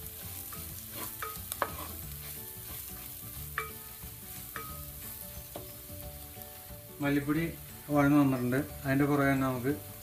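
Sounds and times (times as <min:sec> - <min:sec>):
food frying in a pot: 0:00.0 - 0:10.0
wooden spoon stirring: 0:00.5 - 0:05.8
spoon knocking a metal pot: 0:00.6 - 0:01.9, 0:03.5 - 0:03.9.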